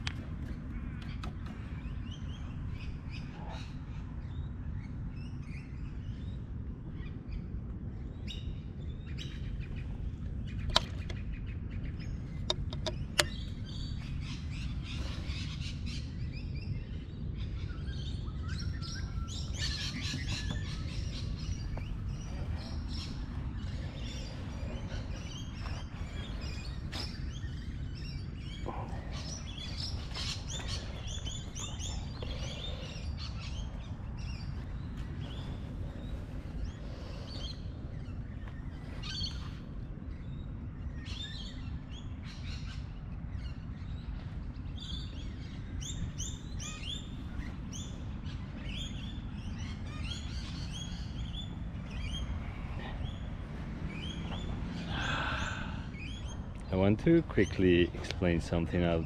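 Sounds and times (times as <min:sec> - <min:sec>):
birds chirping: 0:00.0 - 0:59.0
low background rumble: 0:00.0 - 0:59.0
sharp clicks: 0:12.5 - 0:13.4.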